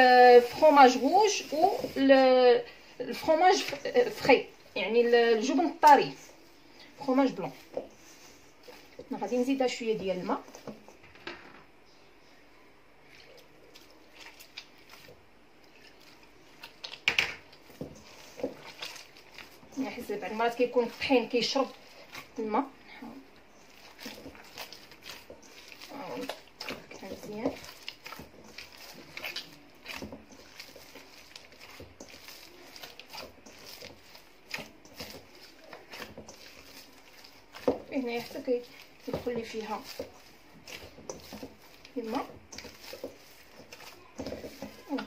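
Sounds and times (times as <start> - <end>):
dough squishing: 0.0 - 11.2, 12.9 - 45.0
metal bowl clatter: 23.8 - 45.0.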